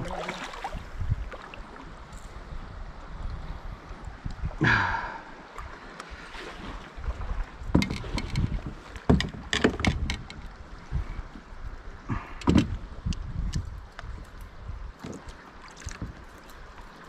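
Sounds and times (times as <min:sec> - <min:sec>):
wind rumble on microphone: 0:00.0 - 0:17.0
paddle knocking against kayak: 0:07.7 - 0:10.5, 0:12.4 - 0:12.8.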